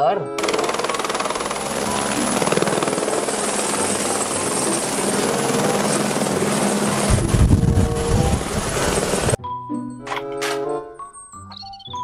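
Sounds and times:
helicopter rotor chopping: 0.4s - 9.4s.

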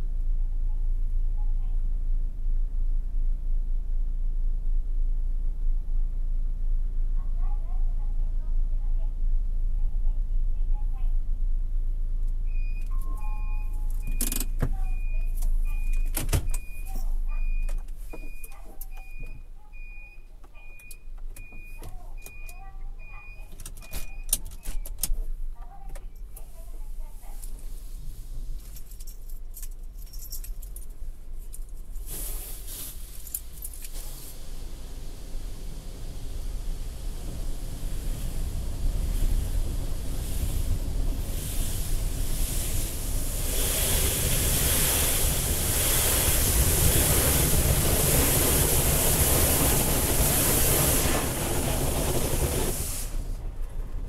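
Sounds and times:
low rumble: 0.0s - 17.7s, 25.2s - 54.0s
car wash machine rumble: 31.8s - 54.0s
water spray pattering on car: 32.0s - 53.4s.

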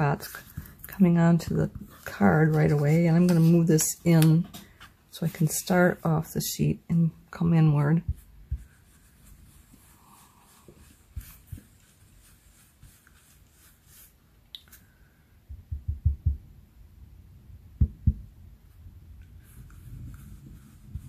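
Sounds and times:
brush rubbing on paper: 0.0s - 3.9s, 7.4s - 14.2s, 19.4s - 21.0s
low thumps: 15.5s - 16.5s, 17.7s - 18.4s.

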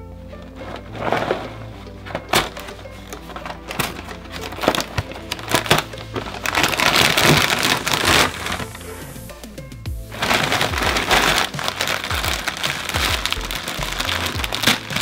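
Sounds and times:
background music: 0.0s - 15.0s
snack packaging crackling: 2.2s - 9.2s, 10.1s - 15.0s.

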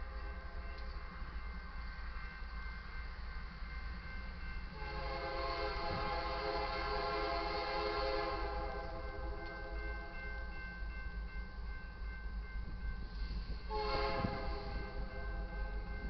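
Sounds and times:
crossing warning bell ringing: 0.0s - 7.4s, 8.2s - 16.0s
locomotive air horn blast: 4.8s - 9.8s, 13.7s - 14.9s.

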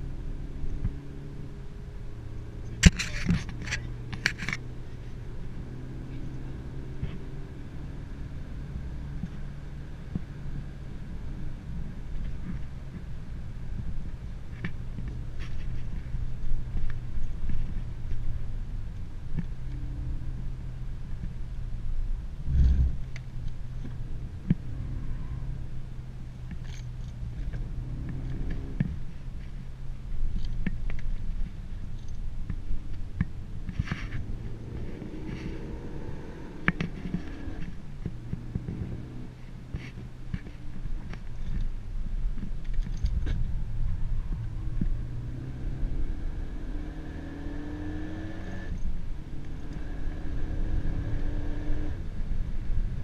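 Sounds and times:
car engine droning in cabin: 0.0s - 53.0s.

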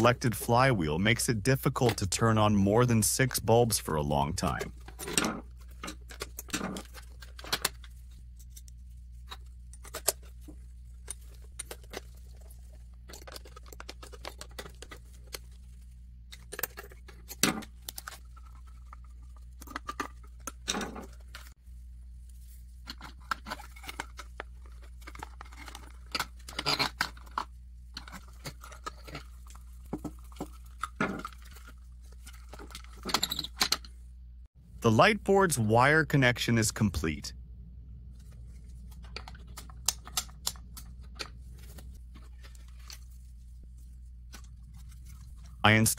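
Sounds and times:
wires being handled: 4.4s - 34.1s, 38.1s - 45.7s
steady low hum: 33.8s - 45.9s.

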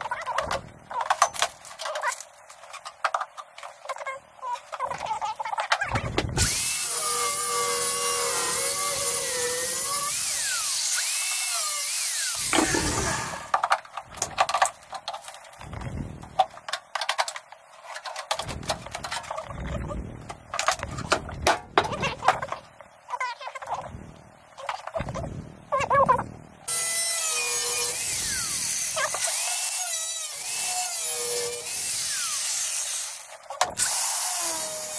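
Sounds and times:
power tool motor whirring: 6.4s - 13.6s.

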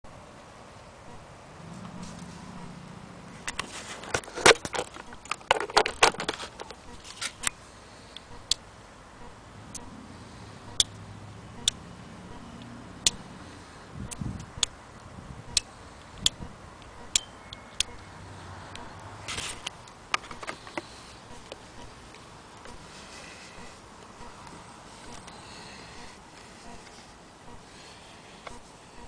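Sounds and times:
sharp clicks and knocks: 3.4s - 7.6s, 11.6s - 13.2s, 18.7s - 21.9s.

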